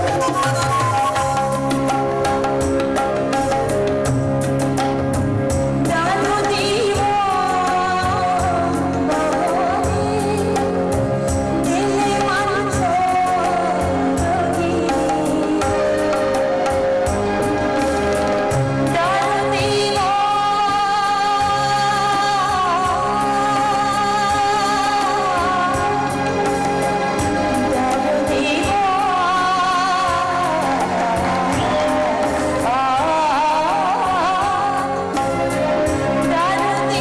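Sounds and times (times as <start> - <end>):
harmonium and keyboard accompaniment: 0.0 - 37.0
woman singing: 5.8 - 16.8, 18.9 - 37.0.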